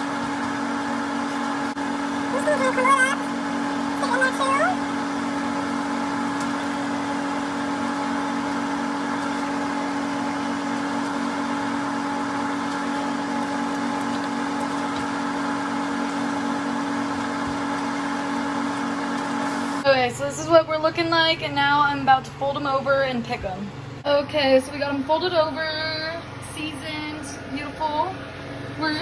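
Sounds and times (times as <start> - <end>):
steady machine hum: 0.0 - 29.0.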